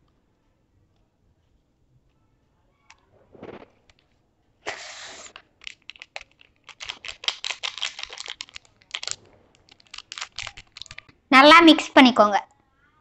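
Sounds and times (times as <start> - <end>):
powder pouring: 4.7 - 11.1
plastic sachet crinkling: 4.7 - 11.2.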